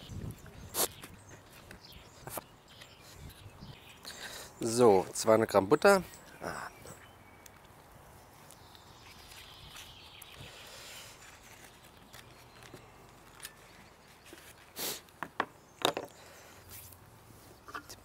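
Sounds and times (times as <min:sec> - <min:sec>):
foil wrapper rustle: 0:09.2 - 0:15.1.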